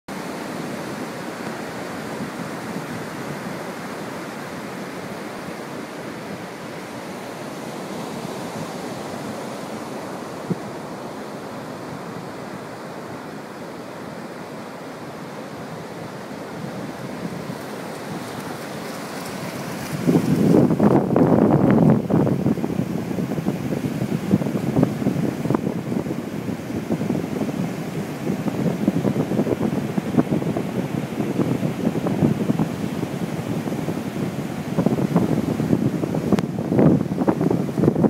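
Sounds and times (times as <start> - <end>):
ocean surf breaking: 0.2 - 38.0
wind on microphone: 15.6 - 38.0.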